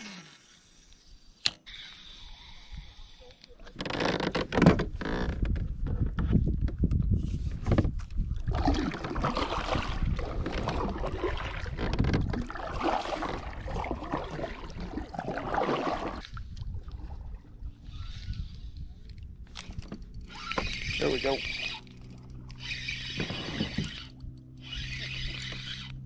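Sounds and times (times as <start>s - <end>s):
microphone handling noise: 4.2s - 9.3s
wind rumble on microphone: 4.6s - 21.6s
paddle splashing in water: 8.4s - 16.4s.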